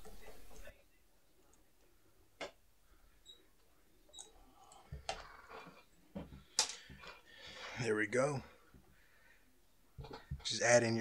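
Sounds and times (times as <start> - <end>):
small clicks and knocks from tools: 10.0 - 10.5.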